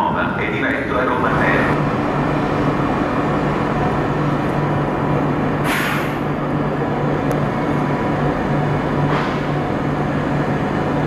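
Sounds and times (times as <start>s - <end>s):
electric train rumbling: 0.0s - 11.0s
air hiss: 5.6s - 6.2s.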